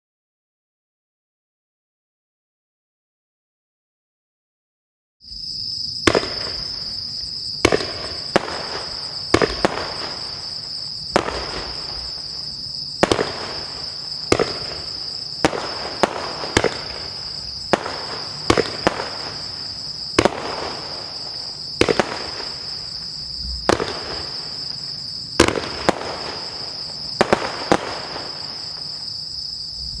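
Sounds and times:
crickets chirring: 5.2s - 30.0s
firework bangs: 6.0s - 29.2s.

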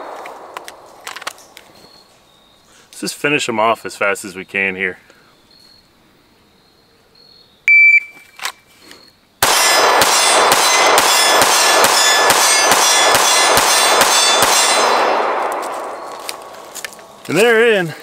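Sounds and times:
pistol shots: 0.0s - 1.5s, 9.4s - 17.2s
shot timer beep: 7.7s - 8.2s.

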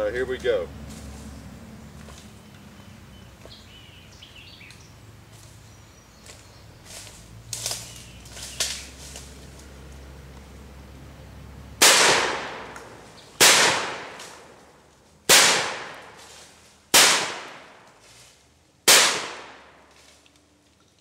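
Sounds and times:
shotgun shots with echo: 11.8s - 14.6s, 15.3s - 16.2s, 16.9s - 17.8s, 18.9s - 19.8s.

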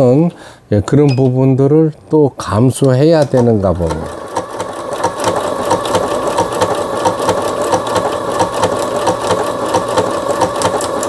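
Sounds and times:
sewing machine stitching: 3.2s - 11.0s.

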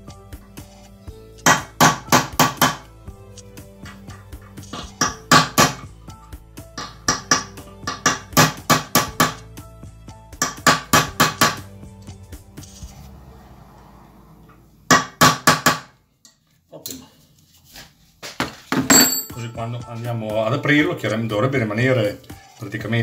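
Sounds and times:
hammer striking metal: 18.8s - 19.5s.

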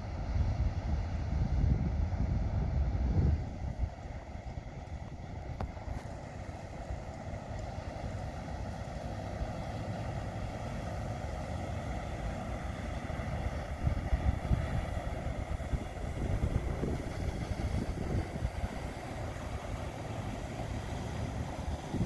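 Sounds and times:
wind buffeting microphone: 0.0s - 8.3s, 12.7s - 22.0s
barge diesel engine running: 4.1s - 22.0s.

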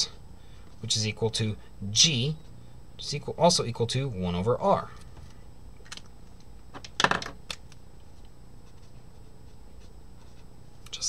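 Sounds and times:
marker set down on wooden desk: 6.8s - 7.4s.

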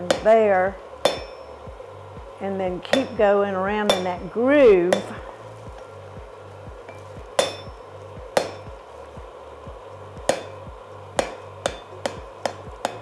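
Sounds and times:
hammer striking hot steel: 0.0s - 13.0s
anvil ringing: 1.0s - 1.7s, 2.9s - 5.2s, 6.9s - 8.8s, 10.3s - 10.6s, 11.2s - 13.0s.

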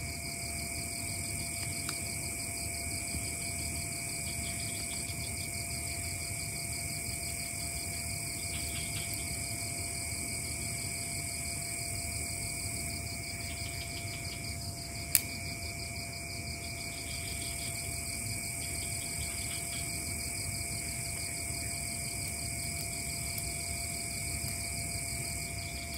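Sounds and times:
insects trilling: 0.0s - 25.9s.

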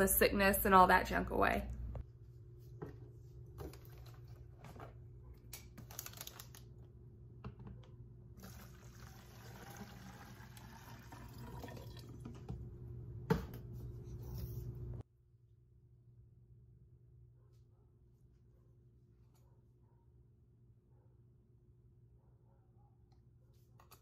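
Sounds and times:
water pouring into plastic jug: 8.4s - 12.5s.

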